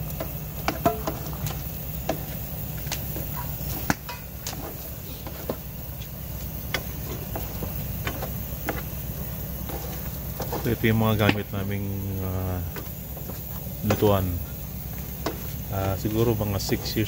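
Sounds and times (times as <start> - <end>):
steady low hum: 0.0 - 17.0
utensil scraping in pan: 6.4 - 11.8, 12.7 - 17.0.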